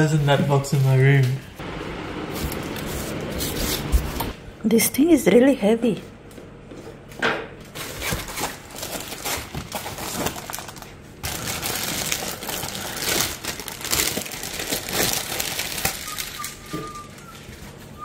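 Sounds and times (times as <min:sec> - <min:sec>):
plastic bag crinkling: 0:07.8 - 0:18.0.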